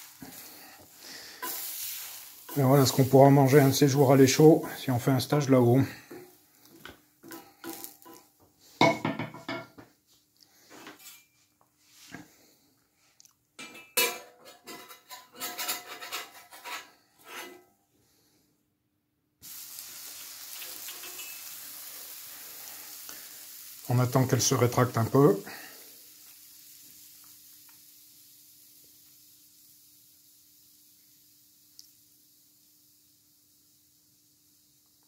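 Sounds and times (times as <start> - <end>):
crepe sizzling on hot plate: 0.0 - 8.4, 19.4 - 35.0
utensils clinking and scraping: 13.6 - 17.6, 20.9 - 21.4.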